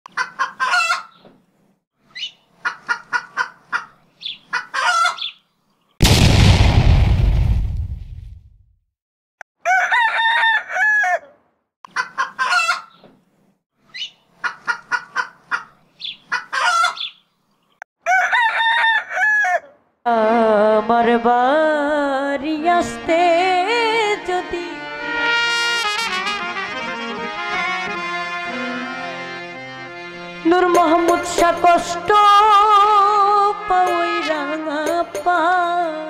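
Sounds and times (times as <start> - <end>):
chickens clucking: 0.1 - 1.4, 2.2 - 5.4, 11.9 - 13.2, 14.0 - 17.2
loud boom: 6.0 - 8.6
rooster crowing: 9.6 - 11.4, 18.0 - 19.8.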